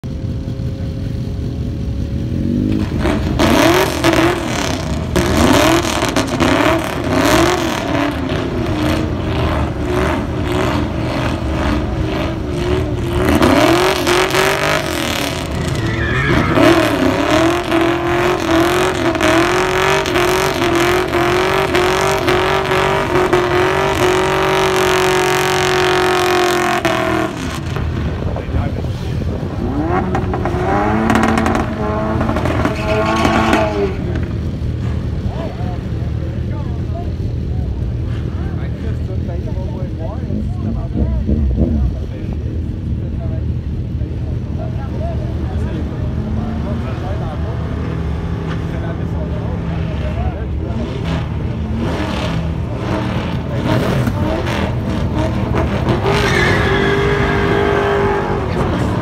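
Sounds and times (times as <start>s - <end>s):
car engine revving hard: 2.3s - 28.3s, 29.0s - 34.3s, 45.8s - 59.0s.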